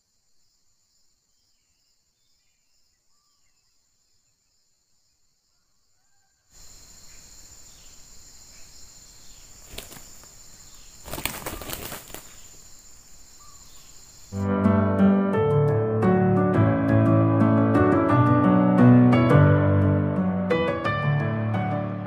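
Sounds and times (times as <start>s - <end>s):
rooster wings flapping: 9.6s - 10.4s, 11.0s - 12.5s.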